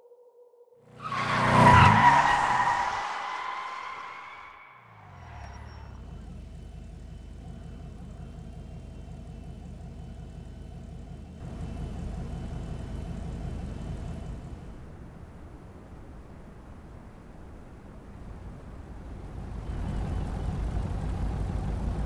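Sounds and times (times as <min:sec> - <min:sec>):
car engine idling: 0:05.0 - 0:22.0.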